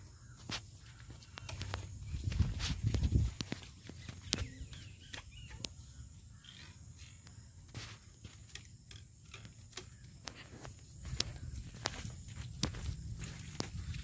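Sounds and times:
faint chirps: 0:00.0 - 0:08.2.

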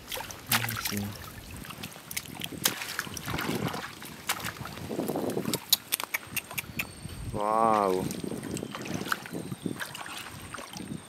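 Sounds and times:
hands splashing in muddy water: 0:00.0 - 0:06.7, 0:07.7 - 0:11.0
sharp clicks in mud: 0:02.1 - 0:03.1, 0:05.2 - 0:07.0.

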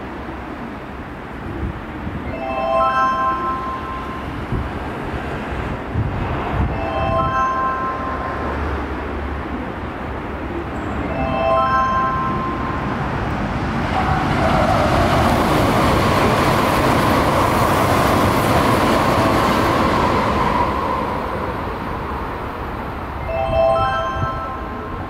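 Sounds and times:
electric train passing at speed: 0:00.0 - 0:25.0
wheel and rail noise: 0:12.0 - 0:23.3.

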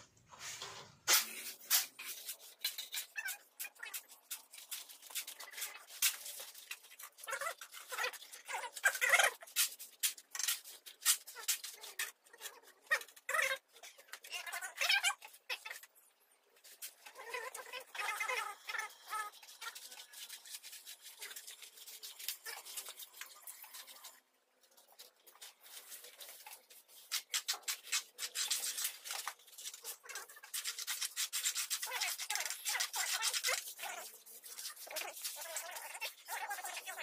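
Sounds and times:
shovels scraping mortar on concrete: 0:00.5 - 0:13.4, 0:25.5 - 0:36.9.

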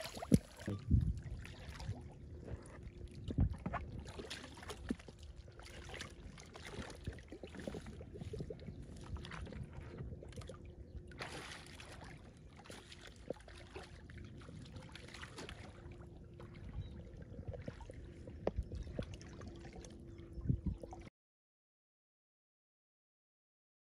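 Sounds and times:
stream water splashing: 0:00.0 - 0:02.1, 0:03.7 - 0:16.9.

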